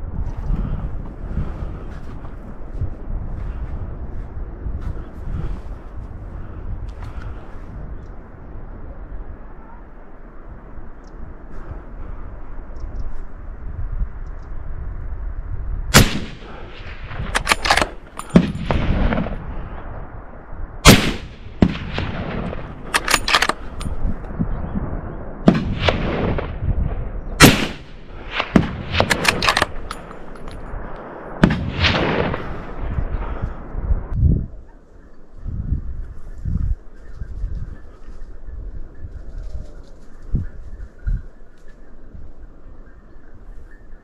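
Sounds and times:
low rumble: 0.0 - 34.7
gunshots with echo: 15.9 - 19.8, 20.8 - 23.7, 25.4 - 26.6, 27.4 - 30.2, 31.4 - 33.4.

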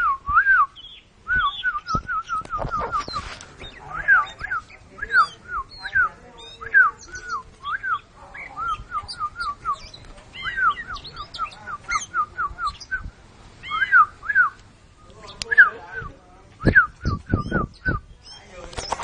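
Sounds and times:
bird whistling song: 0.0 - 18.5
bird twittering: 0.6 - 19.0.

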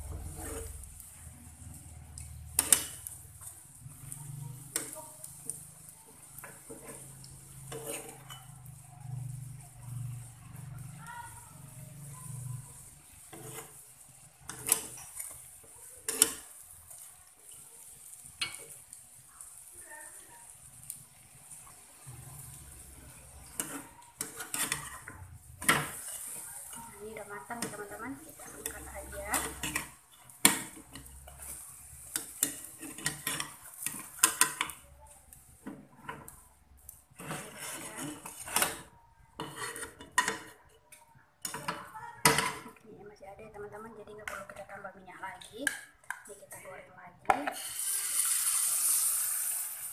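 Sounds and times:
metal spatula scraping frying pan: 0.0 - 5.6, 6.2 - 10.6, 11.6 - 19.0, 22.3 - 40.7, 47.4 - 49.9.

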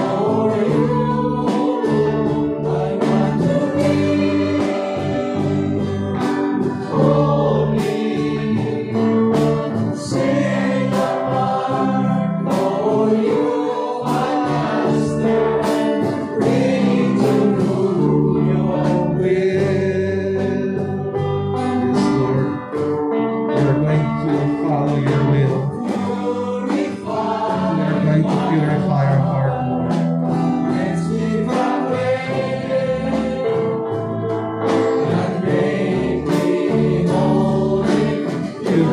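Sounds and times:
worship band playing: 0.0 - 38.9
man singing into a microphone: 9.9 - 21.0, 21.6 - 22.7, 23.5 - 29.9, 36.2 - 38.9.

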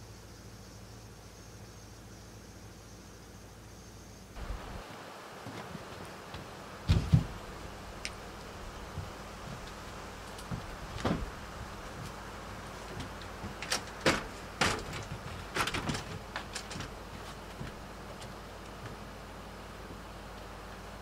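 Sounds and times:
screen door clunks and clatters: 6.4 - 7.7, 8.6 - 19.0.

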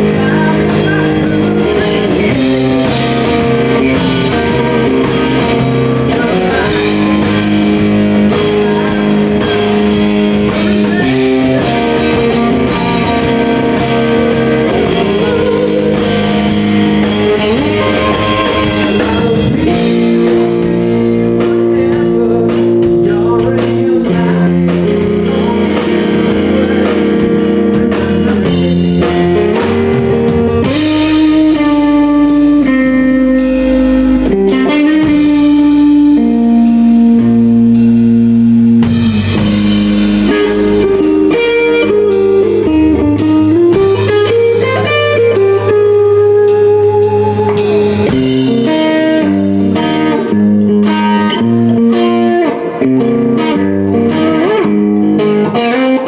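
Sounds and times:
drums: 0.0 - 56.0
electric guitar lead solo: 0.0 - 56.0.

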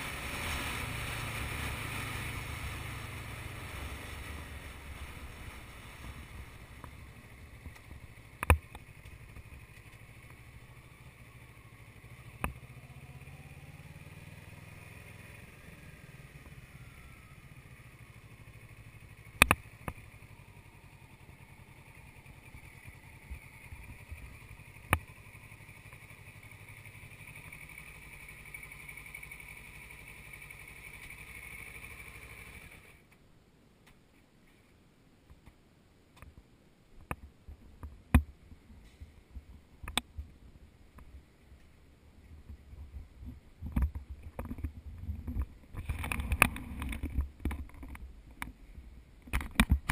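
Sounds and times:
motorcycle engine running: 0.0 - 33.0.

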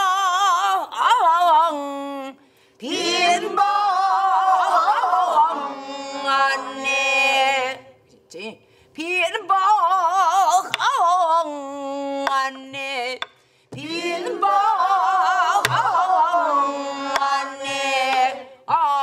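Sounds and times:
woman singing folk song: 7.5 - 19.0.

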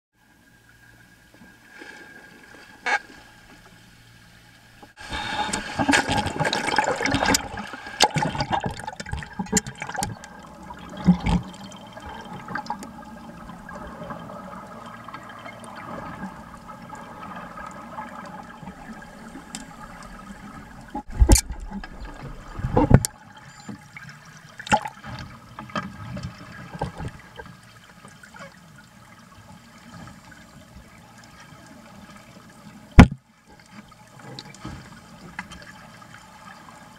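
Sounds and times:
seawater sloshing and bubbling: 0.6 - 36.9
water splashing: 4.8 - 27.5.

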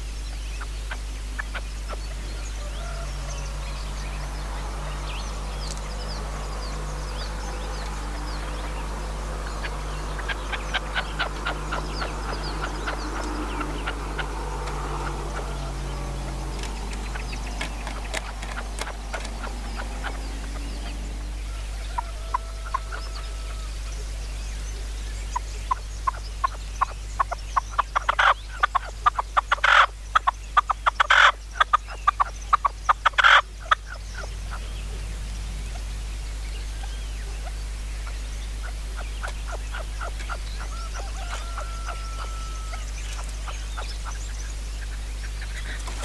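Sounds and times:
harsh partridge calls: 0.4 - 24.1, 25.3 - 46.0
partridges clucking: 10.2 - 21.0.

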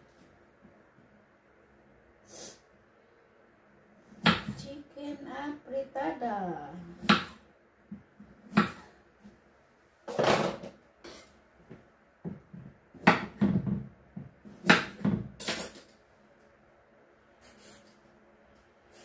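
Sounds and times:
kitchen items knocking and clattering: 10.1 - 10.8, 12.3 - 16.0.

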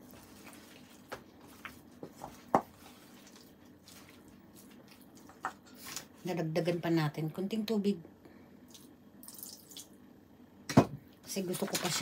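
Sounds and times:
wet squelching of batter: 0.0 - 5.4.

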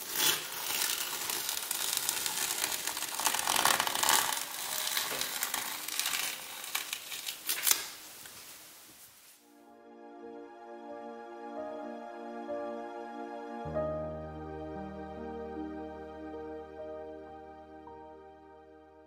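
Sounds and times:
masking tape peeling: 0.0 - 8.4.

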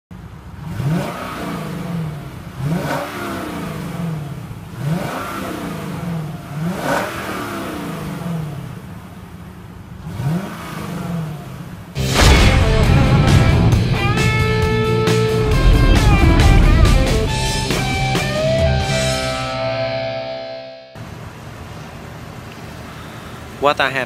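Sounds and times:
car engine revving: 0.2 - 20.2
loud guitar music: 12.0 - 21.0.

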